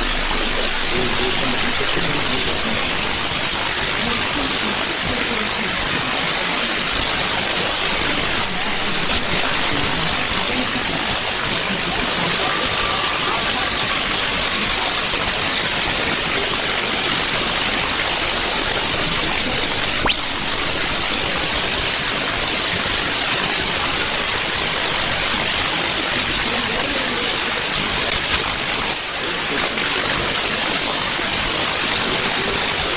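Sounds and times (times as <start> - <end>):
shortwave static hiss: 0.0 - 32.9
weak radio broadcast: 0.0 - 32.9
single click: 20.0 - 20.3.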